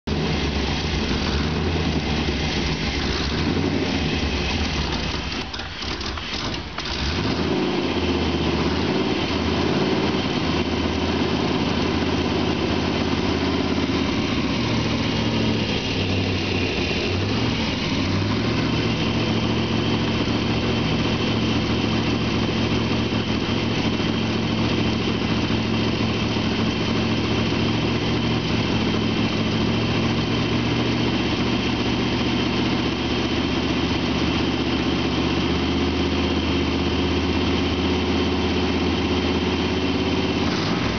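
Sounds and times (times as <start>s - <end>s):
pickup truck engine idling: 0.1s - 7.2s, 7.9s - 27.9s.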